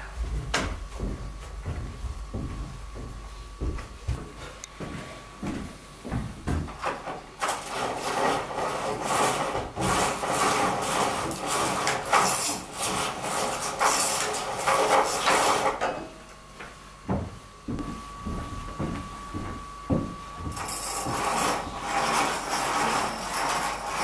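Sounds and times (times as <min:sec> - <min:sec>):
roller blind rasping rattle: 0:07.4 - 0:15.8, 0:20.6 - 0:24.0.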